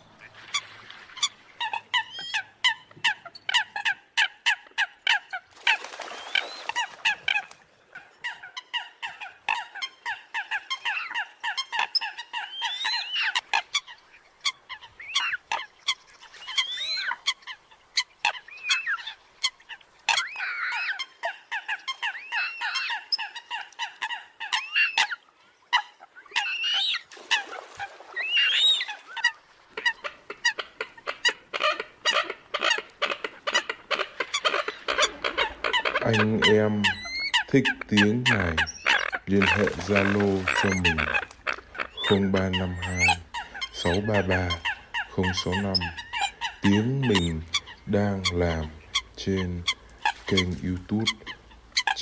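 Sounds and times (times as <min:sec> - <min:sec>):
coots calling: 0:00.0 - 0:52.0
honking calls: 0:29.2 - 0:52.0.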